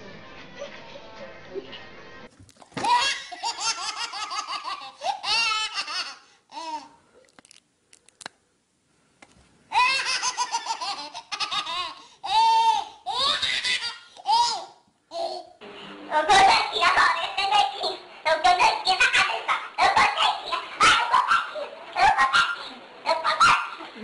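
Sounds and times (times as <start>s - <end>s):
baby laughing: 2.8s - 7.0s, 9.7s - 15.6s.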